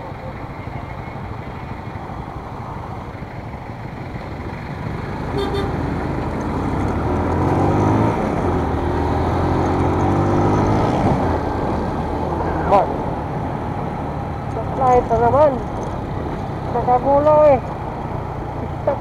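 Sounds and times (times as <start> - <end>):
motorcycle engine revving: 4.7 - 19.0
horn toot: 5.3 - 5.9.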